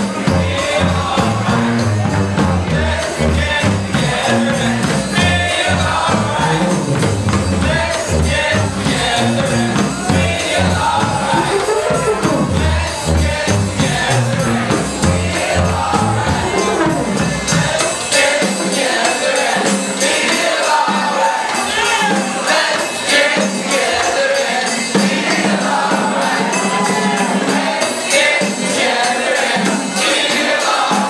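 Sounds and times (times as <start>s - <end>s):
low bass notes: 0.0s - 17.7s
brass band playing: 0.0s - 30.8s
voices singing together: 0.0s - 31.0s.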